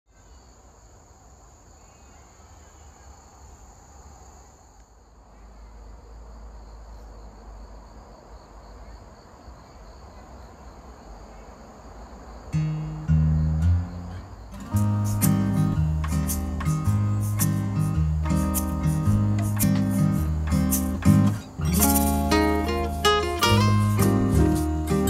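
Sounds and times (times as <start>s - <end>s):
insects chirping: 0.1s - 25.0s
acoustic guitar music: 12.5s - 25.0s.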